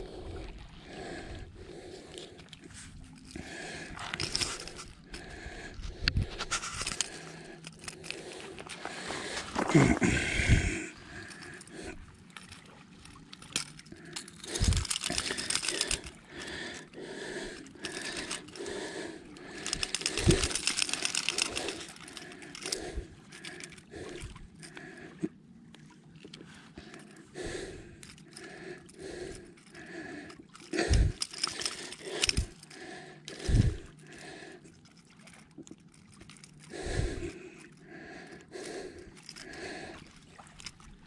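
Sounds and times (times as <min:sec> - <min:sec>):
pliers and hooks clicking: 0:03.9 - 0:05.3, 0:06.4 - 0:08.8, 0:12.4 - 0:16.9, 0:17.5 - 0:18.7, 0:19.3 - 0:24.8, 0:28.0 - 0:33.8, 0:38.6 - 0:40.8.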